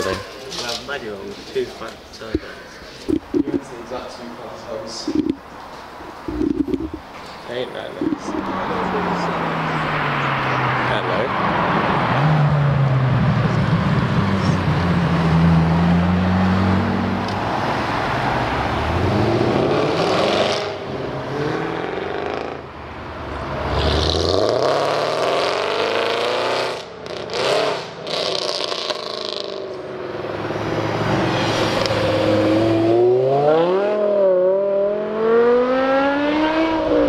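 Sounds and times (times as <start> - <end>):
cars accelerating past: 6.2 - 37.0
sports car engine pulling away: 8.2 - 22.7, 23.6 - 37.0.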